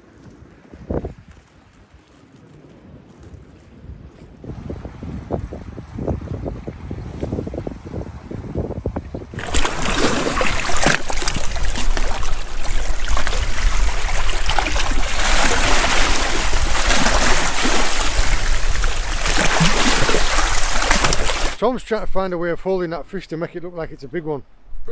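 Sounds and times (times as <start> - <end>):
seawater splashing among rocks: 9.3 - 21.6.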